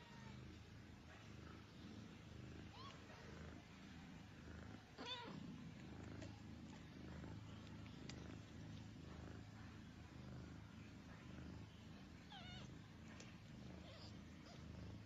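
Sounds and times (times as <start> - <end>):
cats purring: 0.0 - 15.0
kitten squeaking and mewing: 12.3 - 12.7.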